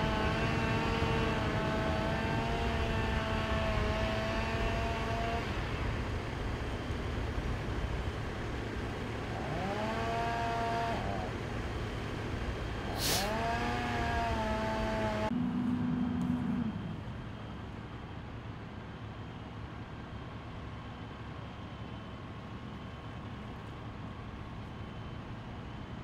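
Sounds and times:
engine revving: 0.0 - 6.0, 9.2 - 11.5, 12.6 - 17.3
steady engine rumble: 0.0 - 26.0
short sharp hiss: 12.9 - 13.3.

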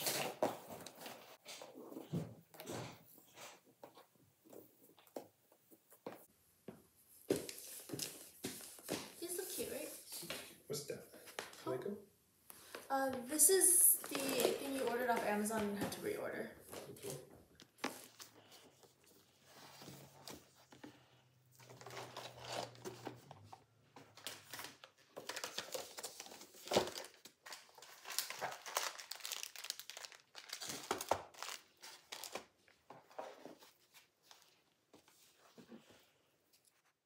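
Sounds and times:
wrapping paper rustling: 13.7 - 15.2, 24.1 - 32.8.

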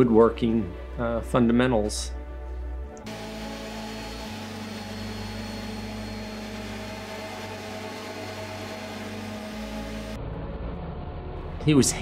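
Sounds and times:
electric orbital sander on wood: 3.0 - 10.2.

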